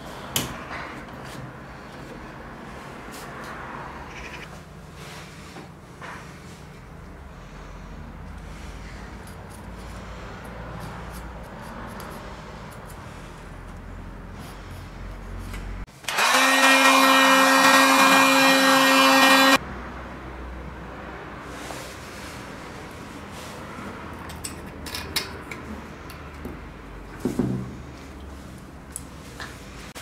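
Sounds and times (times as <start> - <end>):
electric motor whirring: 16.1 - 19.6.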